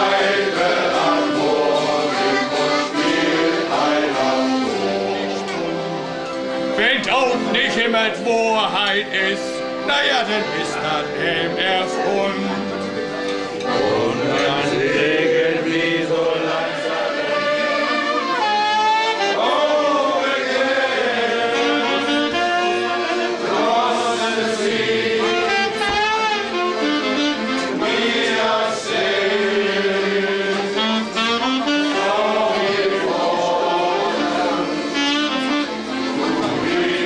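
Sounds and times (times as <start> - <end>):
group of people singing: 0.0 - 6.1, 7.5 - 26.5, 27.5 - 37.0
acoustic guitar: 0.0 - 15.0
accordion: 0.0 - 37.0
saxophone: 16.1 - 24.2, 25.0 - 29.2, 30.5 - 37.0.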